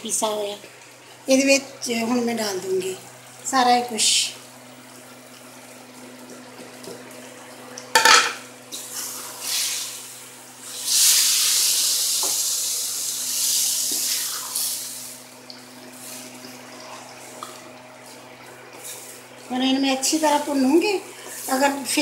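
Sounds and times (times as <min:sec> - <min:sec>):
food sizzling in hot oil: 0:07.9 - 0:17.4
clank on steel pan: 0:08.0 - 0:08.4.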